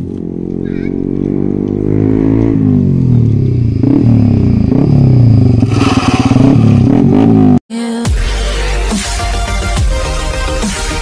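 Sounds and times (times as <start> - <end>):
loud motorcycle passing: 0.0 - 7.6.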